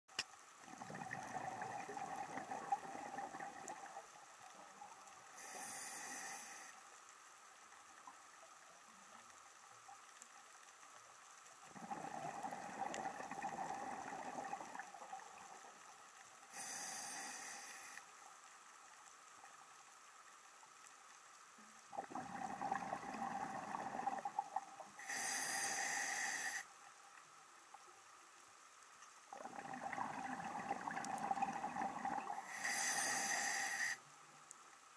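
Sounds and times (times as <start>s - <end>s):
exhaled bubbles gurgling: 0.6s - 5.8s, 11.6s - 16.0s, 21.9s - 26.2s, 29.3s - 33.8s
air hissing through regulator: 25.0s - 26.7s, 32.5s - 34.0s.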